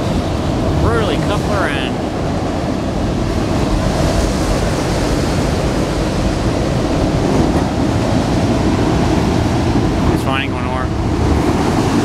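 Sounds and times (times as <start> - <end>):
steel wheels rolling on rail: 5.6 - 10.2, 10.9 - 12.0.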